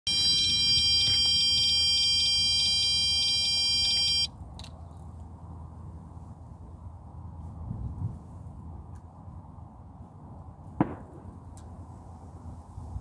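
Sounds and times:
bite alarm high-pitched pulsing tone: 0.1s - 4.3s.

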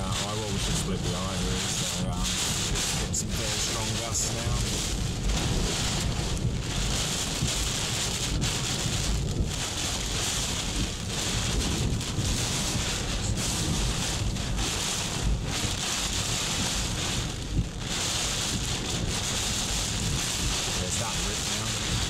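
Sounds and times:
rain hissing on car windscreen: 0.0s - 22.0s
strong wind gusts rumbling: 0.0s - 22.0s.

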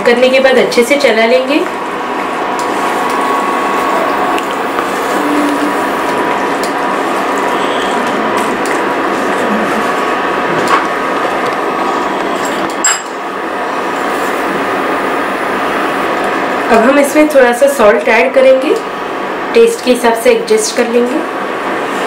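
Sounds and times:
steady frying hiss: 0.3s - 22.0s.

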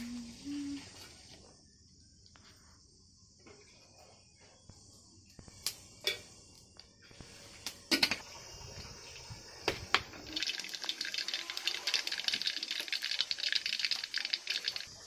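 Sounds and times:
hot oil hissing and crackling: 4.8s - 15.0s.

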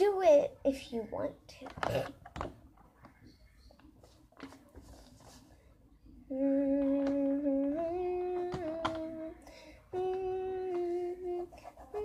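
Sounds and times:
girl humming: 6.2s - 12.0s.

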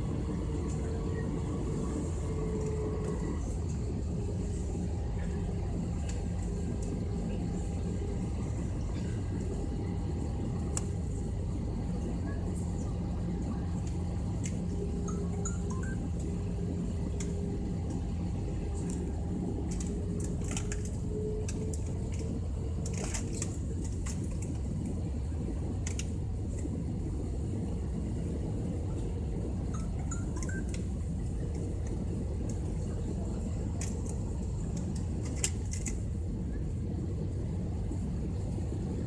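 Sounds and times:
engines and rushing air rumble: 0.0s - 39.0s
light clicks and rattles: 18.7s - 25.0s, 25.7s - 26.7s, 31.5s - 36.1s.

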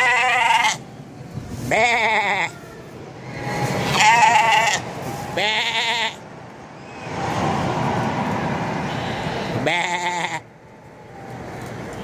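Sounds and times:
sheep bleating: 0.0s - 0.8s, 3.9s - 4.8s, 5.4s - 6.2s, 9.6s - 10.4s.

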